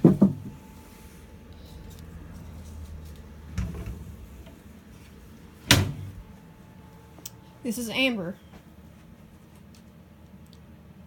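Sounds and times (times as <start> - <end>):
plastic drawers knocking: 0.0 - 0.5
low steady hum: 0.0 - 11.0.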